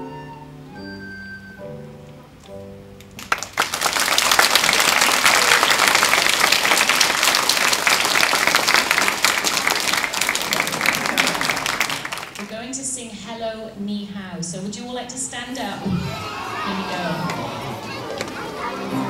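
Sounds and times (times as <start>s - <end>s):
audience applauding: 3.0s - 12.5s, 16.2s - 19.0s.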